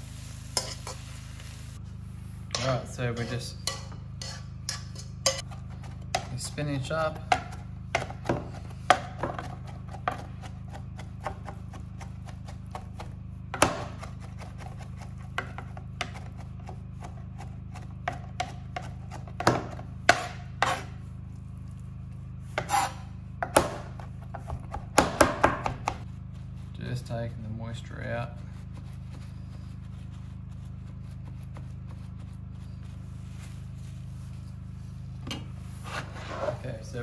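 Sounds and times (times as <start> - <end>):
knife chopping on plastic board: 7.2 - 20.8, 22.6 - 26.0.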